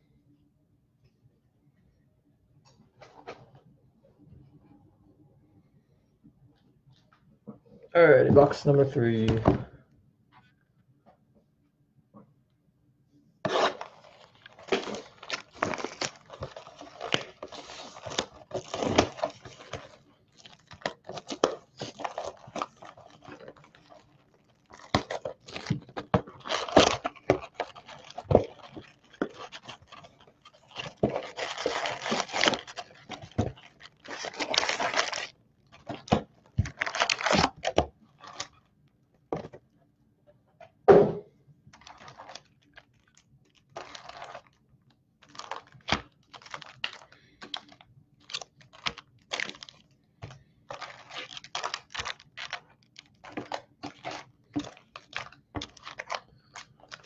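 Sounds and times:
foil packs crackling and rustling: 13.5 - 38.6, 41.8 - 44.6, 45.2 - 57.0
shrink wrap tearing: 13.5 - 38.6, 41.8 - 44.6, 45.2 - 49.8, 50.7 - 57.0.

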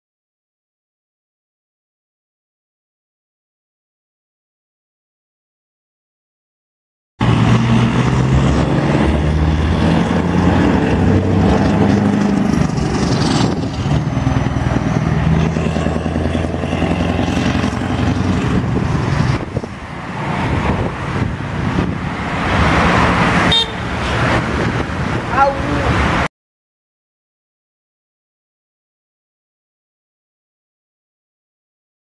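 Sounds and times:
truck diesel engine running: 7.2 - 25.8
road traffic and tyre noise: 7.2 - 26.3
vehicle rushing past: 7.2 - 26.3.

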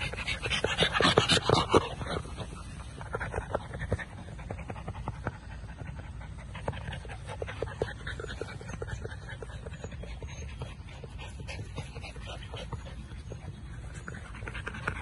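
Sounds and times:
low steady rumble: 0.0 - 15.0
puppy panting: 0.0 - 15.0.

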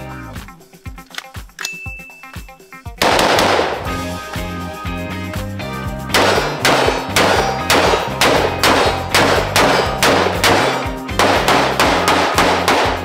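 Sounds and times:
background music: 0.0 - 13.0
rifle shots with echo: 3.0 - 4.0, 6.2 - 13.0.

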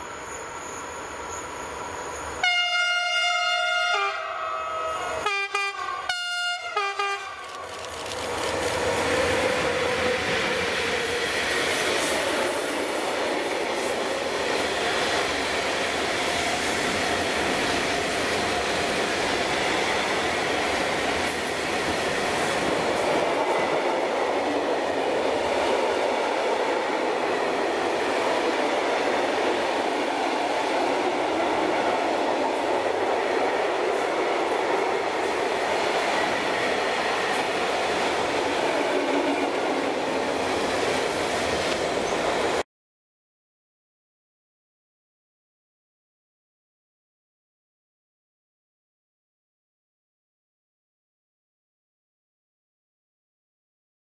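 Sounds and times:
locomotive horn blasts: 2.4 - 7.7
train wheels on rails: 6.8 - 42.6.

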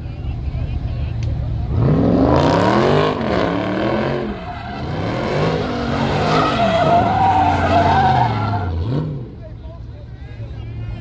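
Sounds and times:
car engine revving: 1.5 - 9.5
tires squealing: 1.7 - 9.5.

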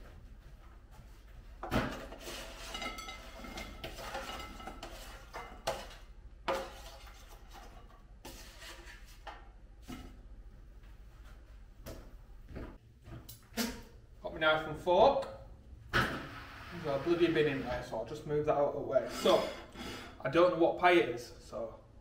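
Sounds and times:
spatula scraping a baking tray: 2.0 - 9.2.

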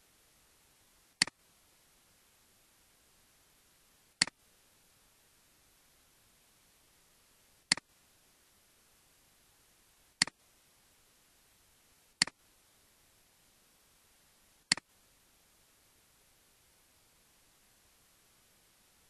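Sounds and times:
faint steady hiss: 0.0 - 19.0
computer mouse clicks: 7.7 - 7.9, 12.2 - 12.4, 14.7 - 14.9.

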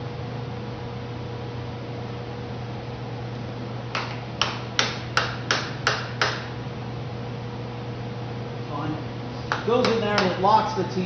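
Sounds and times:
sharp metallic taps: 9.5 - 10.5.

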